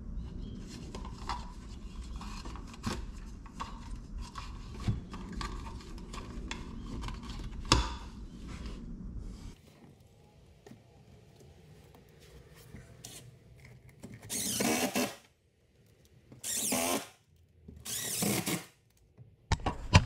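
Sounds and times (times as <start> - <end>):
cordless drill driving screws: 14.3 - 15.3, 16.4 - 17.1, 17.8 - 18.8.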